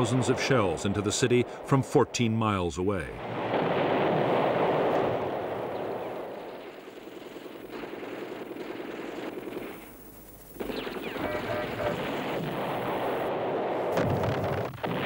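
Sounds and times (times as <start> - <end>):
dense gunfire: 3.2 - 5.7, 6.9 - 9.9, 10.5 - 15.0.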